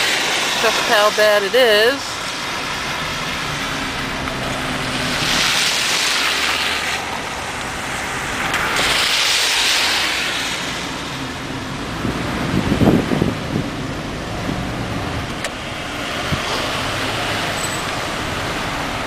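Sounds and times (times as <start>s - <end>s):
car engine and road noise: 0.0s - 19.0s
tyres hissing on wet pavement: 0.0s - 19.0s.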